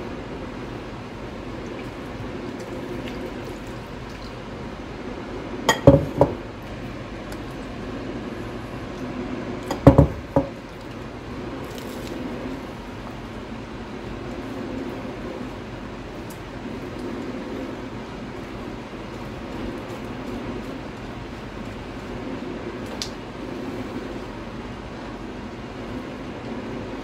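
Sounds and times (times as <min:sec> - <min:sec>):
steady background hum: 0:00.0 - 0:27.0
batter squishing by hand: 0:01.3 - 0:04.9, 0:10.6 - 0:24.2
jug knocking against bowl: 0:05.7 - 0:06.4, 0:09.7 - 0:10.6.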